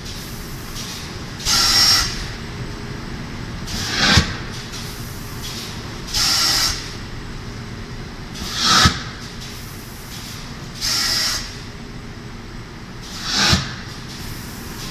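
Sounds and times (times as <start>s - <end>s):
machine hum: 0.0s - 14.9s
air hissing: 13.0s - 14.9s.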